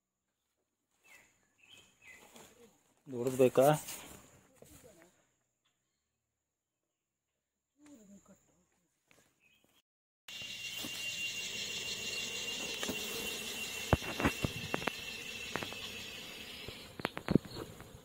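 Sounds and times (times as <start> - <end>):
cicada drone: 10.3 - 18.0.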